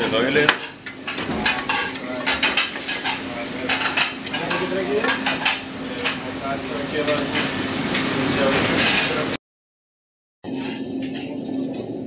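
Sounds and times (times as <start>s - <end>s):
frying hiss: 0.0s - 9.4s
plates pans and utensils clattering: 0.0s - 9.4s.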